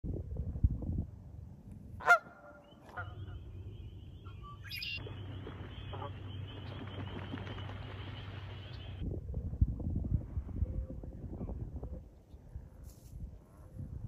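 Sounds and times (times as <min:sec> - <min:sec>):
geese honking: 0:02.0 - 0:09.0
high wavering bird trill: 0:02.5 - 0:09.0.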